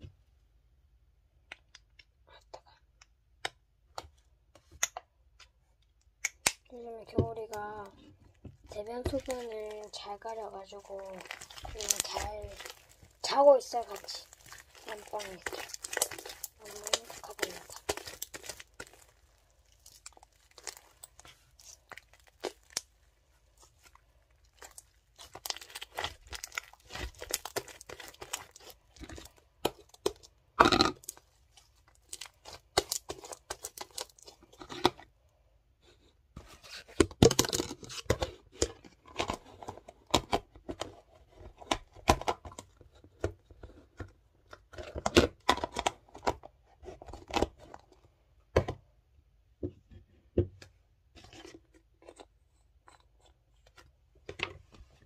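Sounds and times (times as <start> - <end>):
slime squeezed by hand: 11.2 - 22.9.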